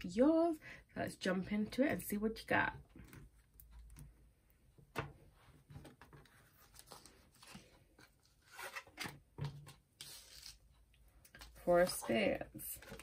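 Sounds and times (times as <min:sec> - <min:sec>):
cards rustling and sliding: 0:05.8 - 0:10.7.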